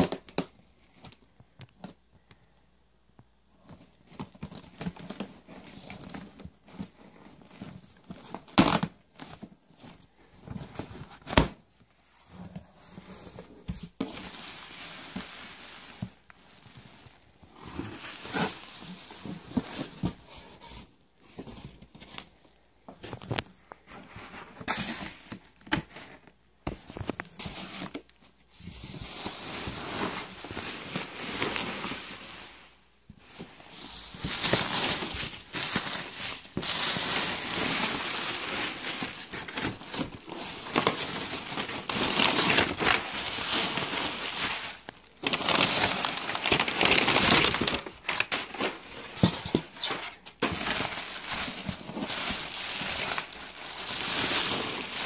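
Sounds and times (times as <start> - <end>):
bubble wrap crinkling: 12.4 - 20.7, 23.2 - 55.0.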